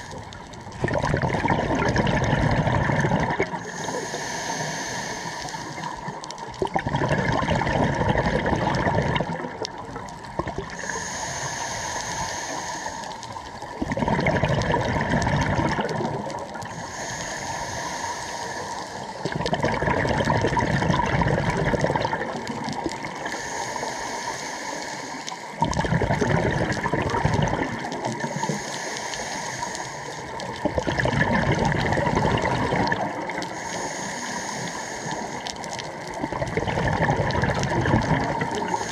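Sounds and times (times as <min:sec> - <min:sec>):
exhaled bubbles rushing: 0:00.0 - 0:03.7, 0:05.8 - 0:10.9, 0:13.6 - 0:16.8, 0:19.2 - 0:23.3, 0:25.6 - 0:28.4, 0:30.3 - 0:33.5, 0:35.5 - 0:38.9
regulator inhalation hiss: 0:03.6 - 0:06.4, 0:10.7 - 0:13.7, 0:16.6 - 0:19.4, 0:23.1 - 0:25.6, 0:28.1 - 0:30.5, 0:32.7 - 0:36.0, 0:38.4 - 0:38.9.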